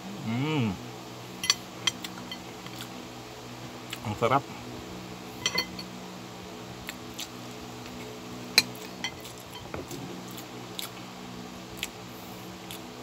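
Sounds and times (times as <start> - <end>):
steady low hum: 0.0 - 13.0
cutlery clinking on a plate: 1.4 - 2.4, 5.4 - 5.9, 8.6 - 9.8
soft chewing: 7.9 - 11.0.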